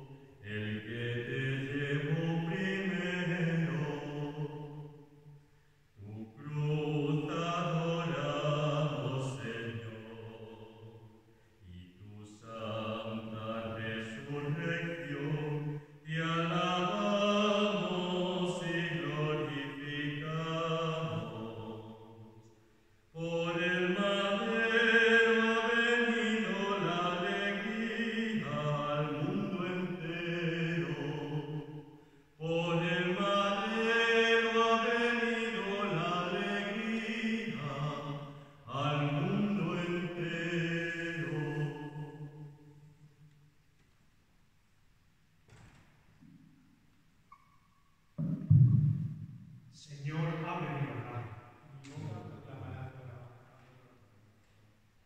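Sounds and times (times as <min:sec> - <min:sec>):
unaccompanied liturgical chant: 0:00.0 - 0:05.4, 0:06.0 - 0:42.9, 0:49.8 - 0:54.1.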